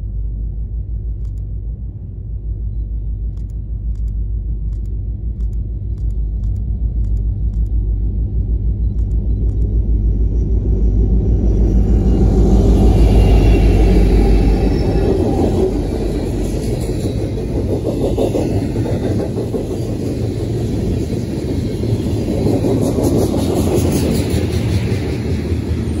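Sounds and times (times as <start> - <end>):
diesel locomotive engine rumble: 0.0 - 26.0
steel wheels rolling on rail: 10.4 - 26.0.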